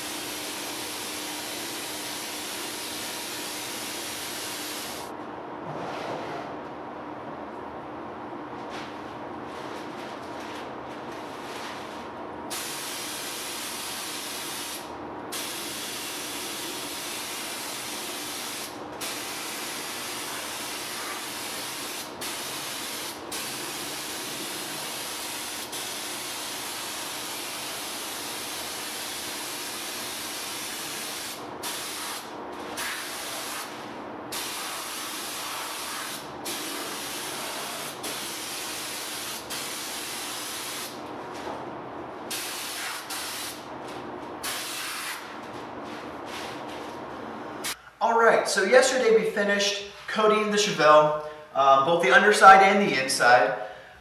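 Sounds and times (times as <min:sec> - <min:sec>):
spray gun hissing: 0:00.2 - 0:05.1, 0:34.4 - 0:40.9, 0:42.3 - 0:43.6.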